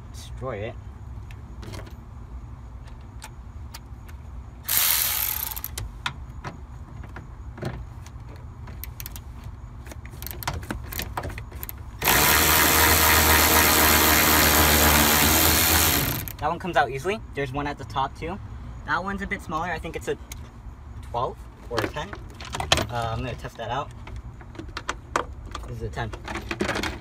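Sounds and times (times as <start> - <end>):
cordless ratchet running: 4.6 - 5.8, 11.6 - 16.4
ratchet clicks: 4.7 - 5.8, 10.2 - 16.4.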